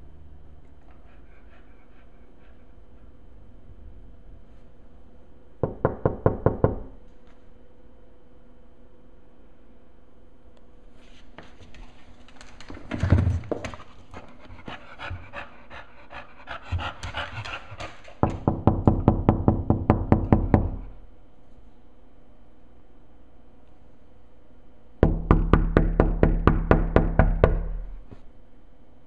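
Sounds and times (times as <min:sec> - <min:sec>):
dog panting: 0:00.8 - 0:03.2, 0:14.1 - 0:18.2.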